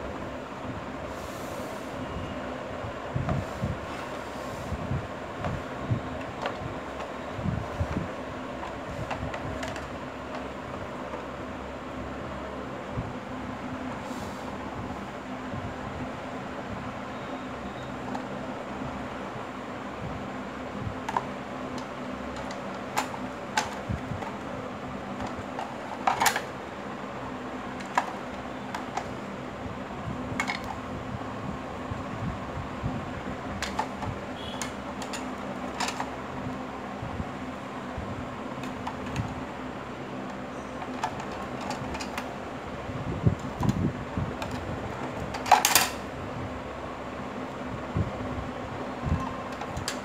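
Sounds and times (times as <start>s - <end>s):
steady hum: 0.0s - 50.0s
plastic parts clicking and knocking: 6.2s - 7.2s, 7.9s - 11.3s, 21.0s - 24.5s, 25.1s - 26.6s, 27.7s - 29.2s, 30.4s - 30.8s, 33.5s - 36.2s, 38.6s - 39.4s, 40.2s - 42.3s, 44.4s - 46.0s
plastic clatter: 25.2s - 26.5s, 33.6s - 34.1s, 35.0s - 36.1s, 40.8s - 42.3s.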